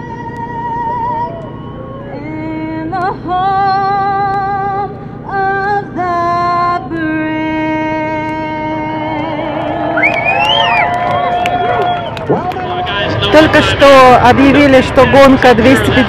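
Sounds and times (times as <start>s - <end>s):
woman singing with vibrato: 0.0s - 10.0s.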